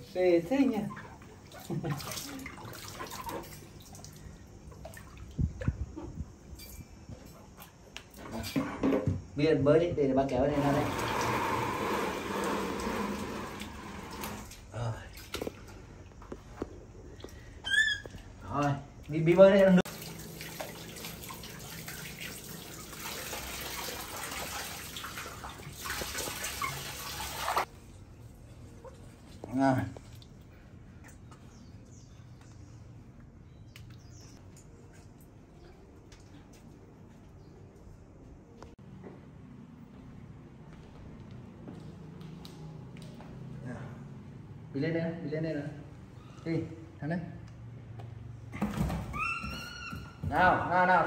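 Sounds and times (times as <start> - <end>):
water splashing in plastic basin: 0.5 - 5.9, 19.0 - 27.7
tap water pouring into basin: 10.6 - 14.6, 19.8 - 27.7.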